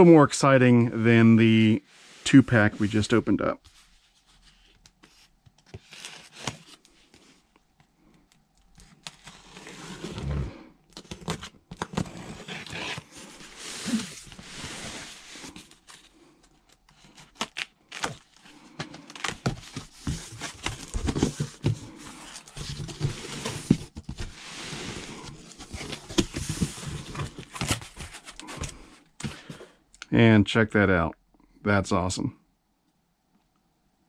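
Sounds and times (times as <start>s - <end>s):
cardboard flaps rustling: 16.9s - 29.6s
packing tape ripping off cardboard: 17.2s - 18.4s.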